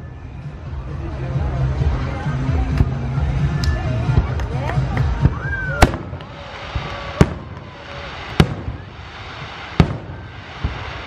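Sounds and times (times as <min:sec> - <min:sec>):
fireworks bursting: 0:02.7 - 0:11.0.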